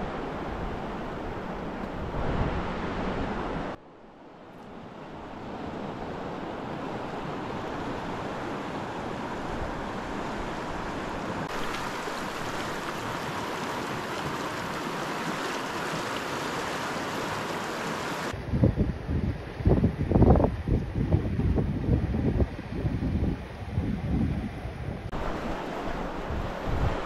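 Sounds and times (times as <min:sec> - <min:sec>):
river water rushing: 0:04.7 - 0:18.4, 0:25.1 - 0:27.0.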